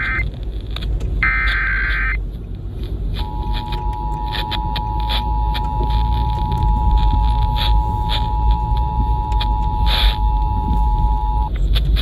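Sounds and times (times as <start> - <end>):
two-tone alert signal: 3.2 - 11.5.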